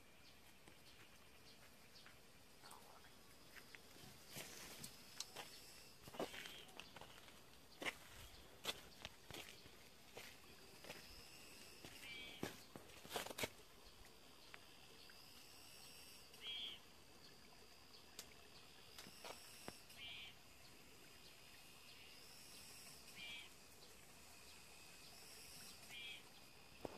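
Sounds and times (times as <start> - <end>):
insects trilling: 0.7 - 26.9
short buzzy insect call: 10.8 - 12.6, 15.0 - 17.0, 18.8 - 20.5, 21.8 - 23.8, 24.4 - 26.9.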